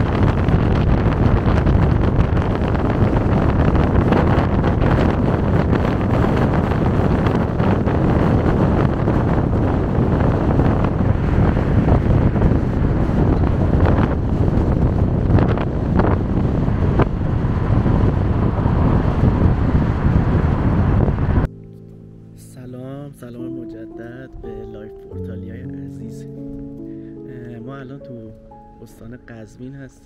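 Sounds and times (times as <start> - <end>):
wind buffeting microphone: 0.0 - 21.5.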